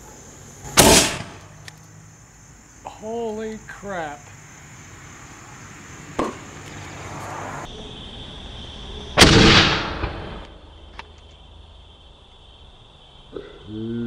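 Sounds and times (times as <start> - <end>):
cannon bang: 0.8 - 1.5, 9.2 - 10.4.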